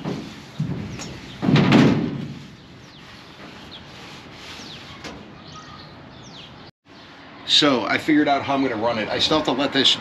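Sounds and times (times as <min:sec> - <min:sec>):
birds chirping faintly: 0:02.4 - 0:08.1.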